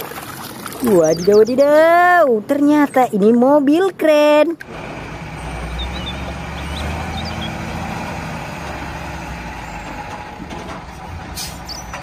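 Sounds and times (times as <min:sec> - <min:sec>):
diesel engine droning: 0:04.6 - 0:12.0.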